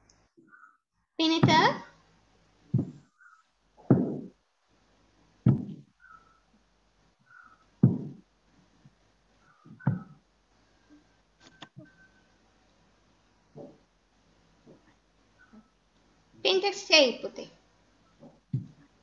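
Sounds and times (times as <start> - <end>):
knocks or thumps: 1.4 - 1.8, 2.7 - 3.0, 3.8 - 4.4, 5.4 - 5.9, 7.8 - 8.2, 9.7 - 10.2, 18.2 - 18.8.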